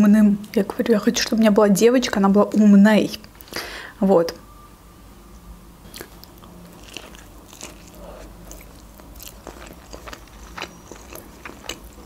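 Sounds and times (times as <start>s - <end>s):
person chewing: 5.9s - 12.0s.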